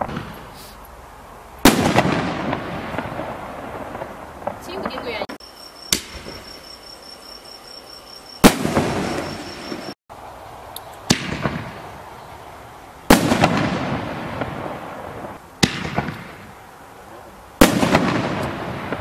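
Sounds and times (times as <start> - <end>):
firework launch thump: 0.0 - 0.7
crackling firework pops: 0.0 - 0.8, 1.6 - 5.3, 5.9 - 6.5, 8.4 - 10.0, 10.8 - 11.8, 13.1 - 19.0
firework burst with rolling echo: 0.0 - 0.8, 1.6 - 6.8, 8.4 - 10.0, 11.0 - 12.1, 13.0 - 19.0.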